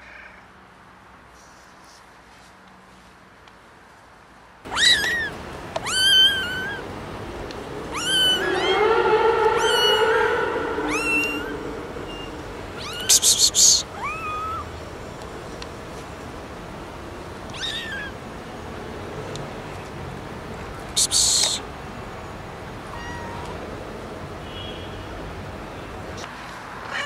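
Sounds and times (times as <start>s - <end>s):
kittens meowing: 4.7s - 6.9s, 7.9s - 14.7s, 17.5s - 18.2s, 22.9s - 23.6s.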